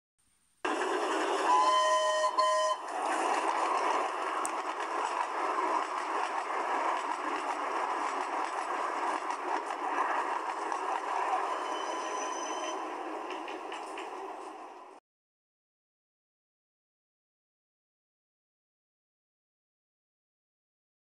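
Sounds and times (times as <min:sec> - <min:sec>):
steady rushing noise: 0:00.6 - 0:01.5, 0:02.8 - 0:11.8
steam locomotive whistle: 0:01.4 - 0:03.0, 0:11.4 - 0:12.9.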